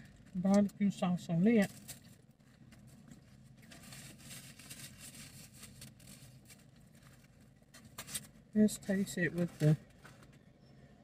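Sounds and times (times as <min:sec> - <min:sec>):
food packaging rustling: 0:01.6 - 0:10.4.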